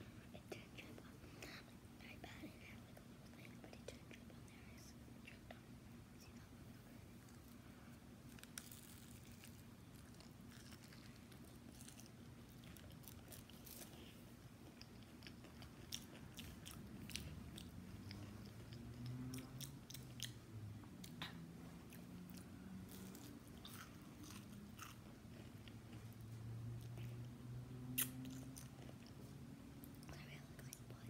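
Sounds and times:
chewing crunchy fried food: 0:08.3 - 0:20.4, 0:21.9 - 0:26.2.

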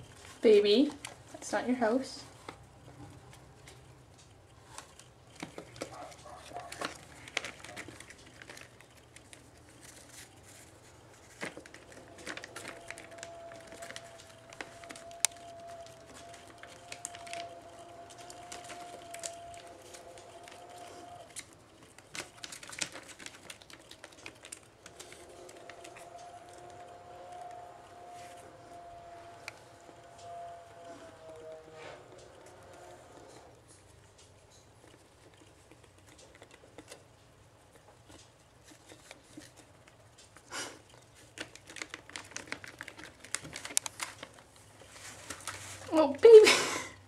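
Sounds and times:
rats scrabbling over paper: 0:00.0 - 0:46.6
faint steady tone: 0:24.9 - 0:34.7.

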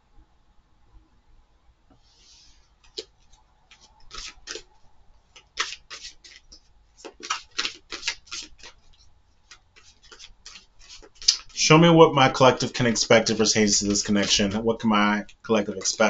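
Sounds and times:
cards being shuffled: 0:02.8 - 0:04.7, 0:05.3 - 0:11.6, 0:12.6 - 0:14.6.

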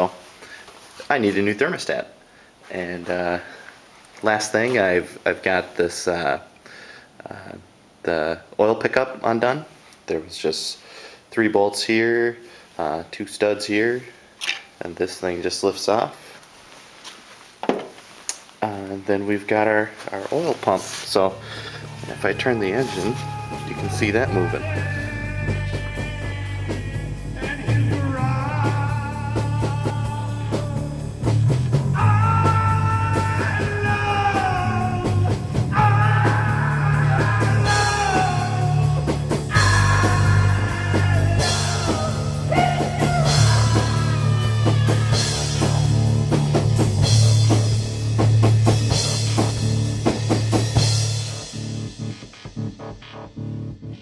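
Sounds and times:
rock music: 0:21.2 - 0:54.0.

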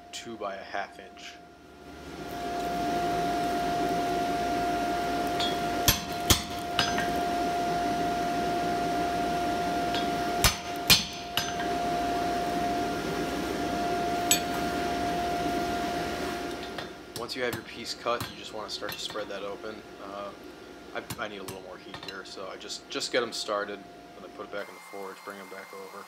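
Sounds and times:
steady hum: 0:00.0 - 0:26.0
hammer striking hot metal: 0:05.2 - 0:07.3, 0:09.9 - 0:11.7, 0:14.2 - 0:14.7.

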